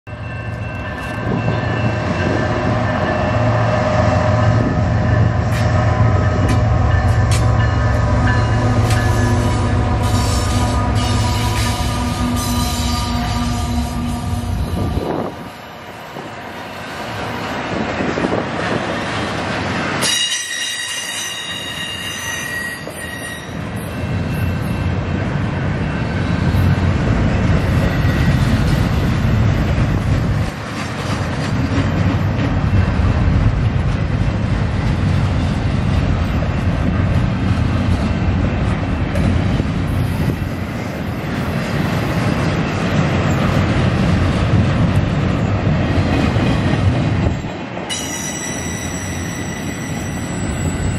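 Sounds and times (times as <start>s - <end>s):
freight train wheels rumbling: 0.1s - 50.9s
metallic wheel squeal: 20.0s - 24.8s.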